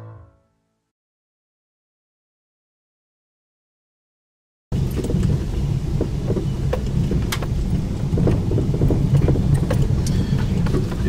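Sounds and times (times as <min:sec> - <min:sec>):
vehicle cabin rumble: 0:04.7 - 0:11.0
knocks and rattles from bumps: 0:04.8 - 0:11.0.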